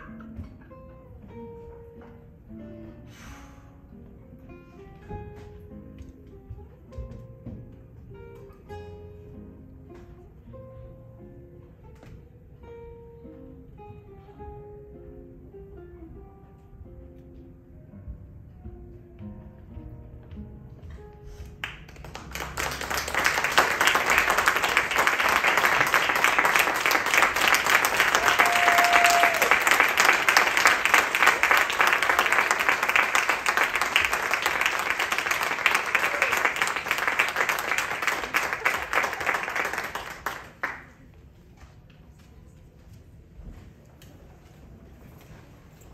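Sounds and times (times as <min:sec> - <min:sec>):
audience applauding: 0:21.6 - 0:41.0.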